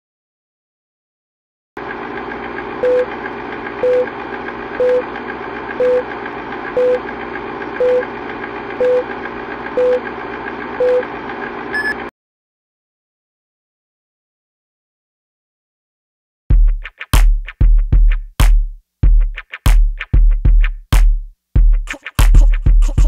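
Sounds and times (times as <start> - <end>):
film projector whirring: 1.8 - 12.1
short beeps: 11.7 - 12.1.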